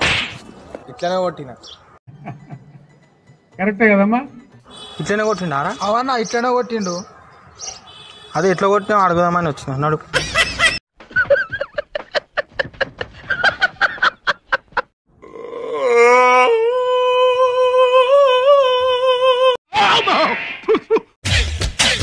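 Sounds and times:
man laughing: 0:02.1 - 0:02.9, 0:10.1 - 0:14.9, 0:19.8 - 0:21.1
music: 0:02.3 - 0:04.7, 0:21.2 - 0:22.0
long vocal cry: 0:15.2 - 0:19.6.

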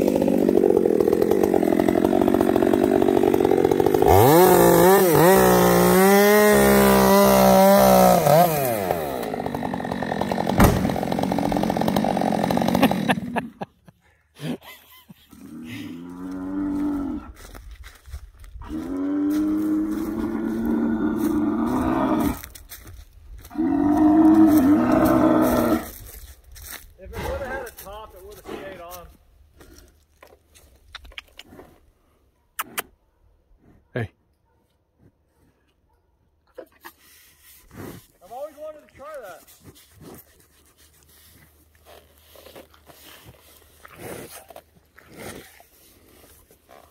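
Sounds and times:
bull bellowing: 0:15.3 - 0:17.5, 0:18.6 - 0:22.6, 0:23.4 - 0:26.1
bull breathing and sniffing: 0:24.3 - 0:34.0, 0:34.9 - 0:35.9, 0:36.5 - 0:46.9.

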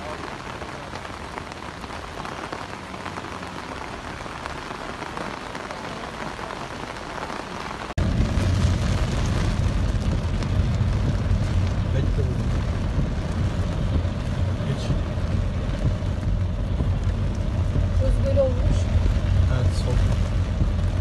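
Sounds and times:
heavy rain pouring: 0:00.0 - 0:21.0
rain on car windscreen: 0:00.0 - 0:21.0
deep low rumble: 0:08.0 - 0:21.0.

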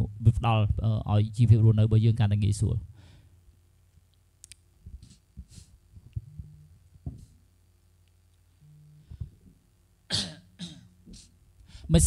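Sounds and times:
faint low hum: 0:00.0 - 0:12.0
soft knocks: 0:06.2 - 0:07.4.

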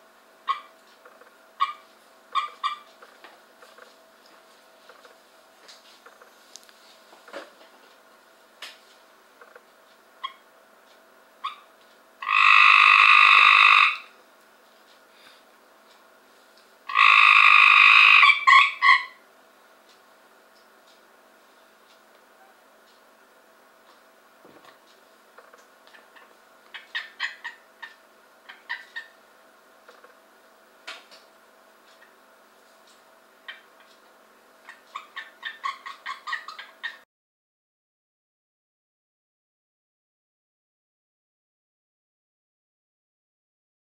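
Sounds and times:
tree frog chirping and trilling: 0:02.4 - 0:02.9, 0:11.4 - 0:14.1, 0:16.9 - 0:19.2, 0:25.4 - 0:29.2, 0:34.7 - 0:37.0.

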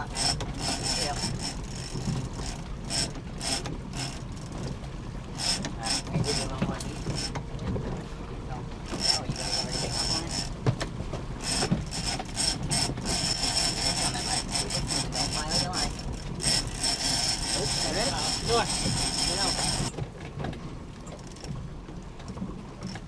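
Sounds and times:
fishing reel ratcheting and whirring: 0:00.0 - 0:04.7, 0:05.3 - 0:07.4, 0:08.9 - 0:10.6, 0:11.4 - 0:19.9, 0:21.2 - 0:21.5.

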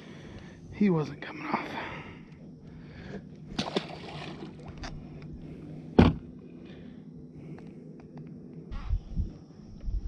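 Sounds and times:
loud sharp thump: 0:06.0 - 0:06.2.

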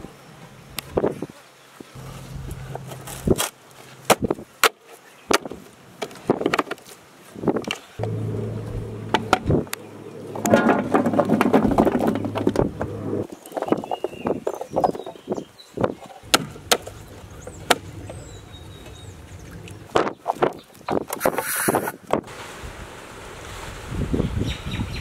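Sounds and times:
steady low hum: 0:08.0 - 0:13.3.

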